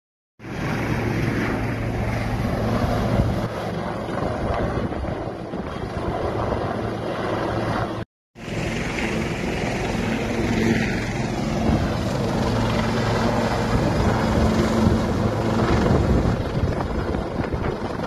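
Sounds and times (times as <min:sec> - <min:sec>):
wind buffeting microphone: 0:00.4 - 0:18.0.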